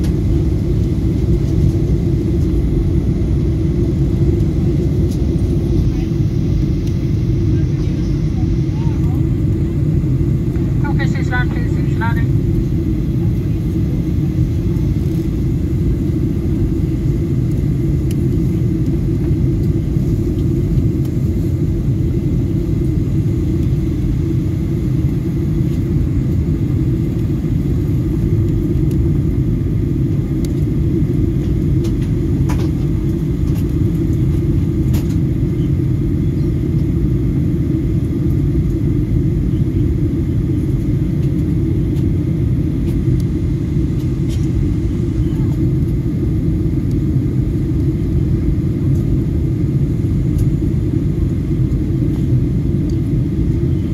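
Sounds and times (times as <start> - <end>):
airliner cabin rumble: 0.0 - 53.9.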